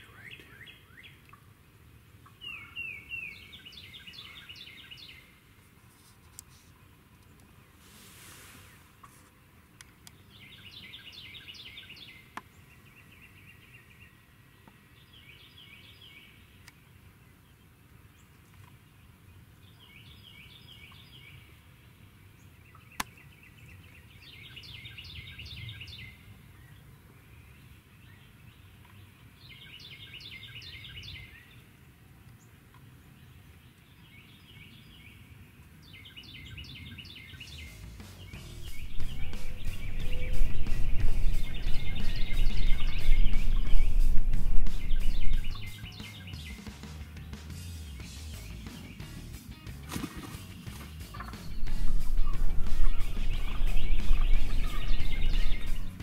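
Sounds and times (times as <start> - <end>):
turkeys gobbling: 51.1 - 56.0.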